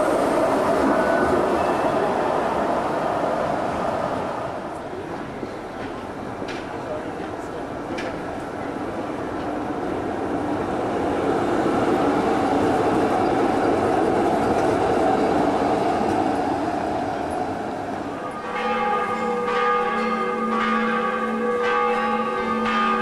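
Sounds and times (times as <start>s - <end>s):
tram wheels on rails: 0.0s - 23.0s
church bells ringing: 18.1s - 23.0s.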